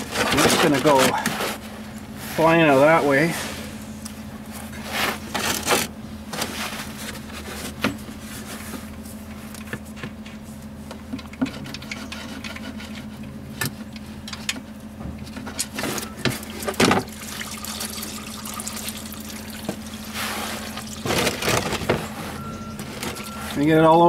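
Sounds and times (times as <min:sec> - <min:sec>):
oil splashing into drain pan: 0:16.6 - 0:20.0.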